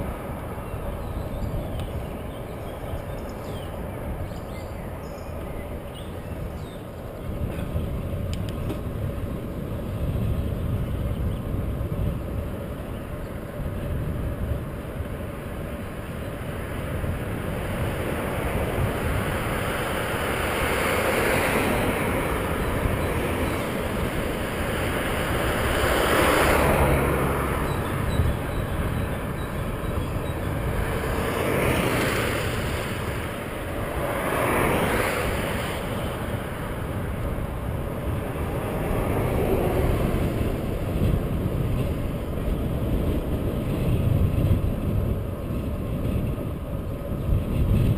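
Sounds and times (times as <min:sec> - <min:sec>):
wind buffeting microphone: 0:00.0 - 0:47.9
cars passing: 0:11.6 - 0:47.9.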